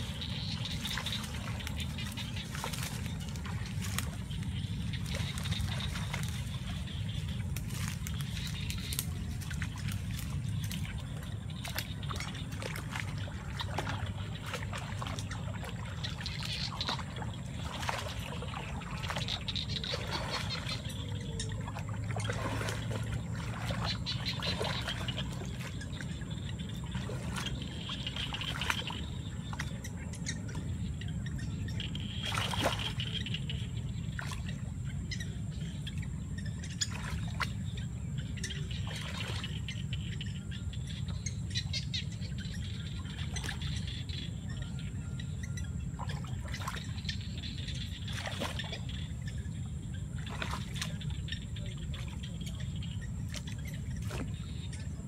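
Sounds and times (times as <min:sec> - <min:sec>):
steady low rumble: 0:00.0 - 0:55.0
water sloshing and splashing: 0:00.0 - 0:55.0.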